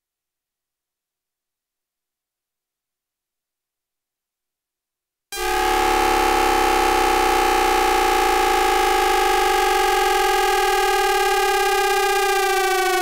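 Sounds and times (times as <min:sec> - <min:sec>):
electronic inverter tones: 0:05.4 - 0:13.0.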